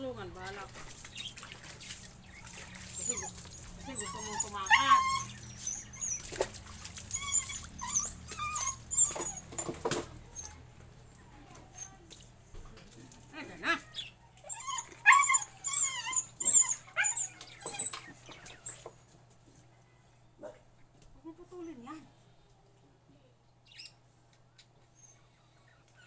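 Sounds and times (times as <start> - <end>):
puppy whining and whimpering: 2.4 - 10.6, 13.9 - 19.0, 24.9 - 26.0.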